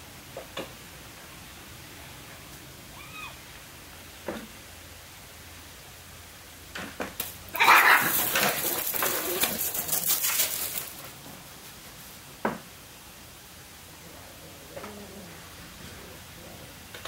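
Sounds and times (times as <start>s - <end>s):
kittens hissing and growling: 7.5s - 10.1s.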